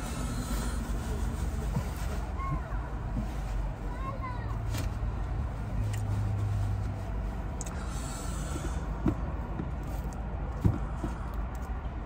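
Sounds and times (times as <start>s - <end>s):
car engine humming: 0.0s - 12.0s.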